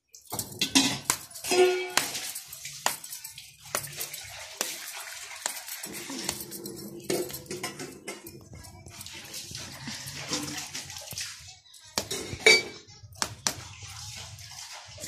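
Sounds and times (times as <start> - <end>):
hands clapping and slapping: 1.0 - 7.6, 13.2 - 13.9.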